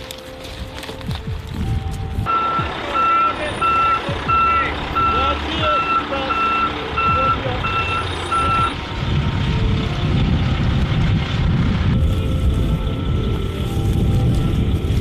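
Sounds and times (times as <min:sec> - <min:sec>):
low rumbling: 0:00.0 - 0:15.0
reversing alarm beeping: 0:02.2 - 0:08.8.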